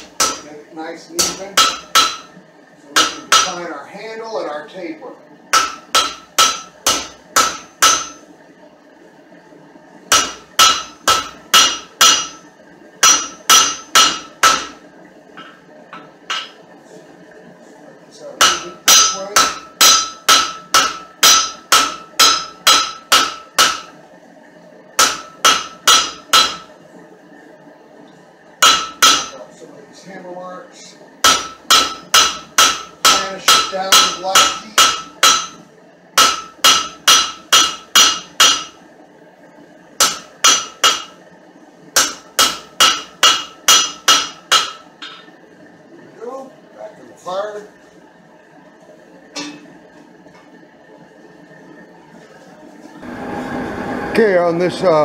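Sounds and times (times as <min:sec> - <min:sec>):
hammer ringing on anvil: 0:01.2 - 0:02.3, 0:05.6 - 0:08.2, 0:10.1 - 0:12.4, 0:13.0 - 0:14.8, 0:18.4 - 0:23.9, 0:25.0 - 0:26.7, 0:28.6 - 0:29.4, 0:31.2 - 0:35.6, 0:36.2 - 0:38.8.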